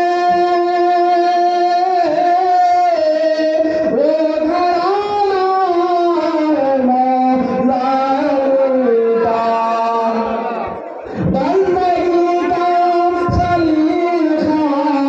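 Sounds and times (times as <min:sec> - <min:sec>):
man chanting through microphone: 0:00.0 - 0:15.0.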